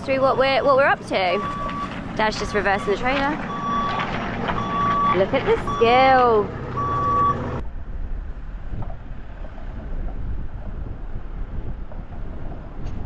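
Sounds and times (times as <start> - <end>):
vehicle engine: 0.0 - 13.0
wind buffeting microphone: 0.0 - 13.0
low rumble: 0.3 - 13.0
vehicle reversing beep: 0.6 - 7.6.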